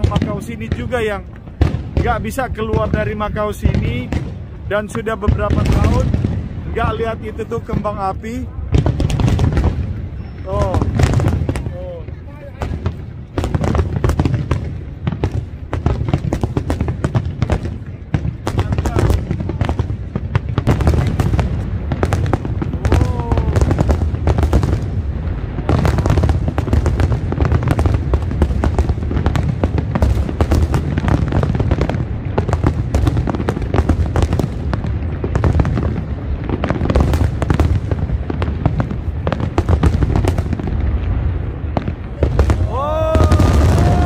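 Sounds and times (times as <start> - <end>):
fireworks bangs and crackling: 0.0 - 44.0.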